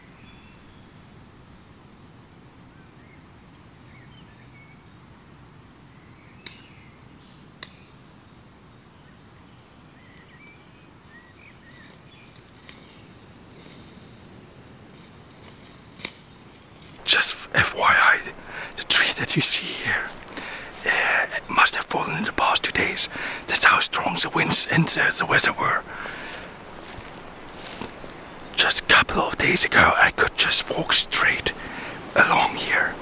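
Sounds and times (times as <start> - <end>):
low background hiss: 0.0 - 33.0
small birds chirping: 2.8 - 14.1, 15.2 - 33.0
footsteps in dry leaves: 11.1 - 17.0, 20.0 - 21.0, 25.6 - 28.6.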